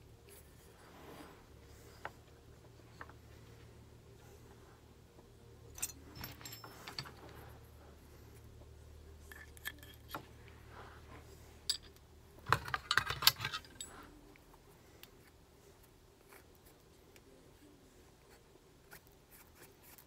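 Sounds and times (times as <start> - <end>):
metal parts clicking and clinking: 5.7 - 7.5, 9.2 - 10.3, 11.7 - 14.2.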